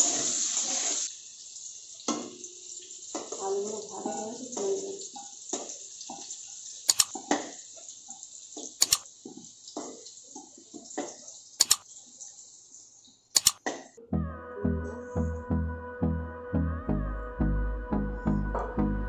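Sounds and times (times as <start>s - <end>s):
stove hissing: 0.0s - 14.0s.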